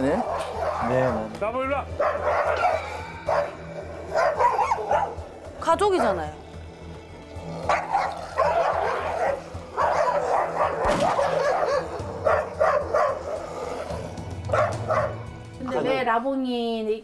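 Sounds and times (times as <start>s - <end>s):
dogs barking and snarling: 0.0s - 15.6s.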